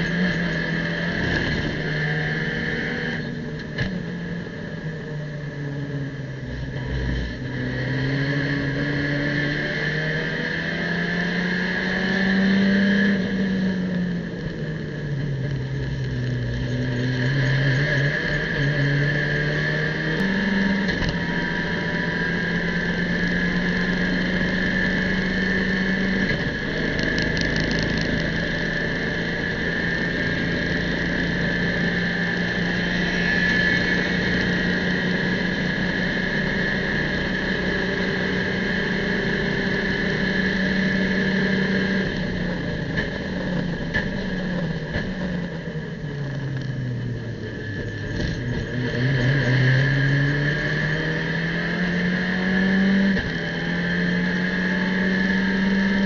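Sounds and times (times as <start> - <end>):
high whine: 0.0 - 56.0
race car engine at high revs: 0.0 - 56.0.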